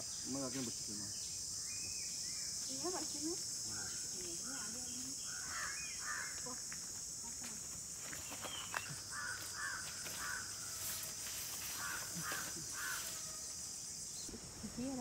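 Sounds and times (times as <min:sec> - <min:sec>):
high-pitched insect drone: 0:00.0 - 0:15.0
birds calling: 0:03.6 - 0:06.6, 0:08.1 - 0:10.9, 0:11.6 - 0:15.0.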